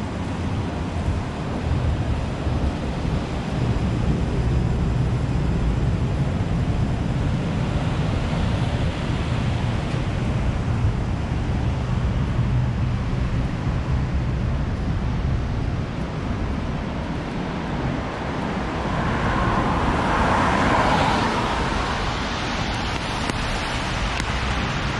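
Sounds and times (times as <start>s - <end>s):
wet street low rumble: 0.0s - 24.9s
car tyres hissing on wet road: 17.9s - 24.9s.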